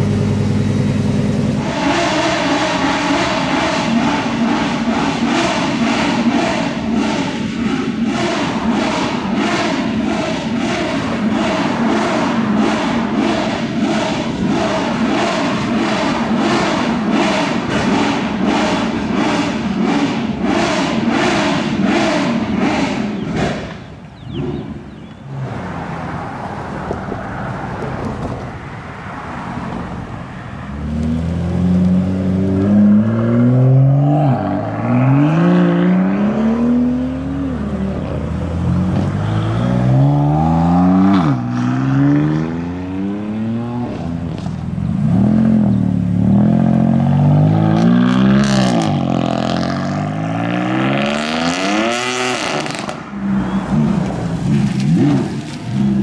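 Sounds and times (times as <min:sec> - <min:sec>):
car engine accelerating hard: 0:00.0 - 0:28.5, 0:29.1 - 0:56.0
loud even pulses: 0:01.6 - 0:23.8.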